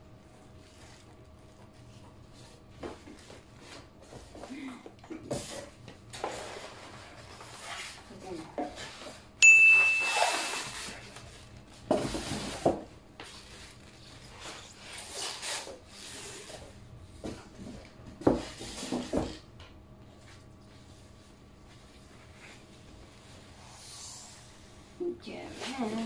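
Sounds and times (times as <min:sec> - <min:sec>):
polystyrene squeaking against cardboard: 0:10.1 - 0:11.1, 0:13.4 - 0:16.5.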